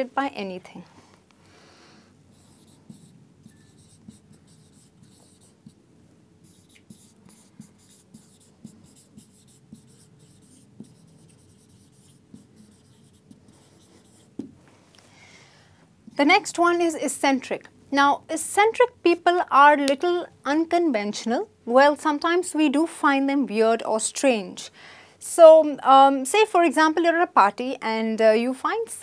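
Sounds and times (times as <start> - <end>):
marker writing on whiteboard: 2.3 - 5.8, 6.4 - 14.6.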